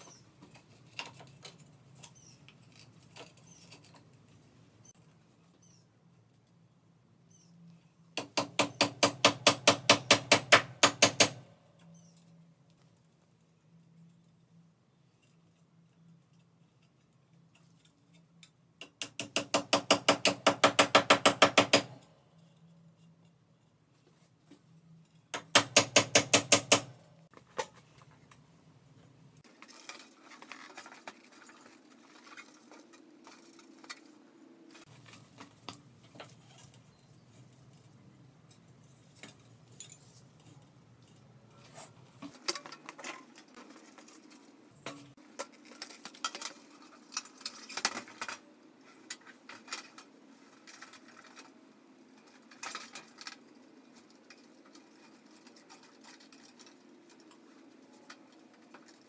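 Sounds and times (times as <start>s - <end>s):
small metal parts clinking: 38.5s - 41.2s.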